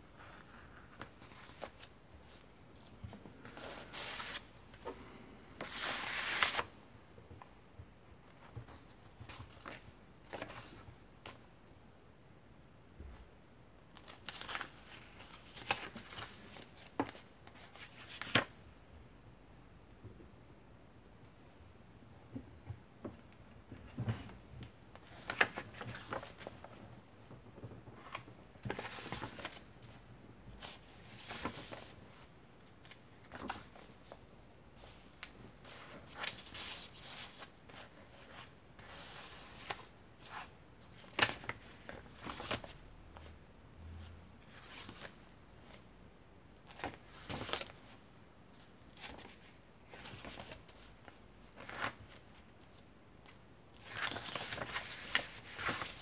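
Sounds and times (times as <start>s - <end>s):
paper pages turning: 0.2s - 5.0s, 5.6s - 6.7s, 14.0s - 18.5s, 25.0s - 26.8s, 27.9s - 29.6s, 32.8s - 34.2s, 49.0s - 52.7s, 53.8s - 56.0s.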